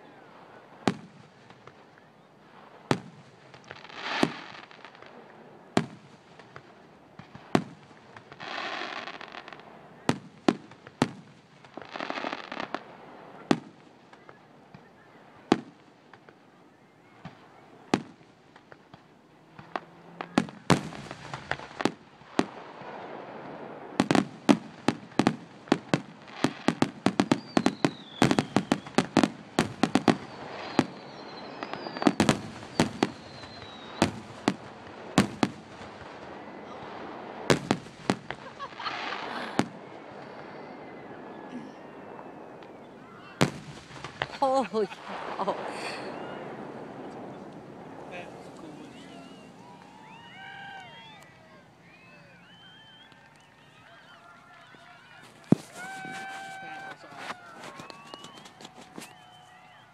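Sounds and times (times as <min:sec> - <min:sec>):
firework shells bursting: 0:55.2 - 0:59.5.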